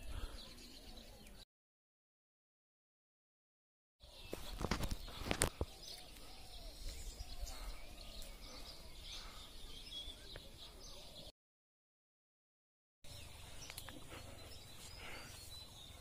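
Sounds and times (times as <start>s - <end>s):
birds chirping: 0.0s - 1.4s, 4.0s - 11.3s, 13.0s - 16.0s.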